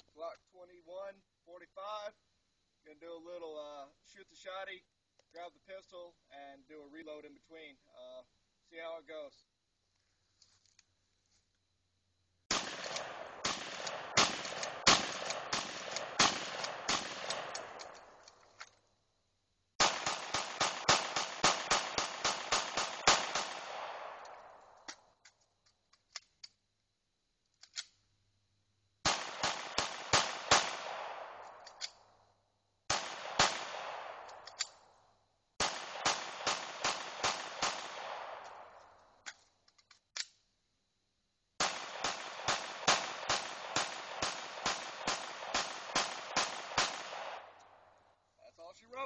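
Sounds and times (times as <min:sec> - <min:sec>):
pistol shots: 0:12.5 - 0:18.3, 0:19.8 - 0:25.1, 0:29.0 - 0:32.0, 0:32.9 - 0:34.8, 0:35.6 - 0:39.0, 0:41.6 - 0:47.8.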